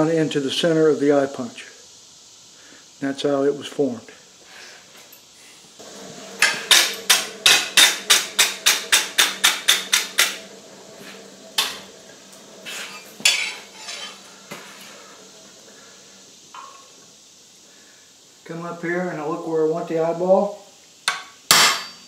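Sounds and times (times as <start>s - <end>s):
wire brush scrubbing steel: 6.2s - 16.0s.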